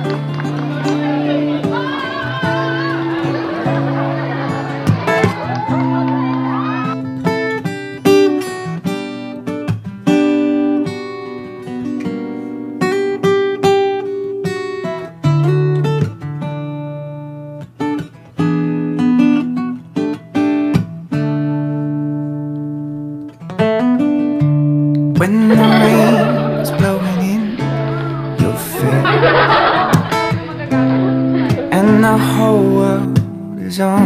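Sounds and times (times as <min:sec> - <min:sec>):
acoustic guitar picking: 0:00.0 - 0:34.0.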